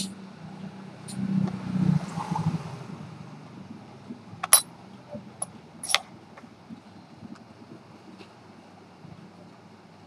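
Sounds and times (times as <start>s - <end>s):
metal parts clinking on tweezers: 4.4s - 4.7s.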